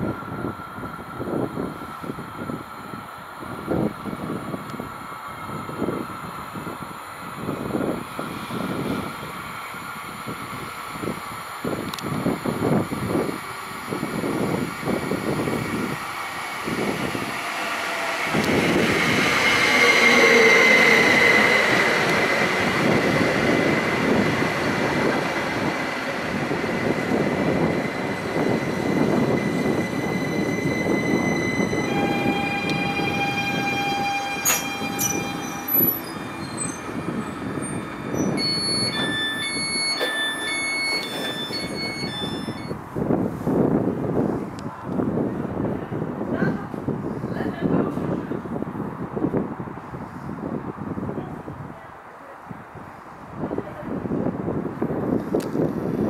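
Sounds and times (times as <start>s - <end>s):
train wheels rumbling on rails: 0.0s - 51.7s
high squeal of train: 0.0s - 56.0s
short high beeps: 30.2s - 42.8s.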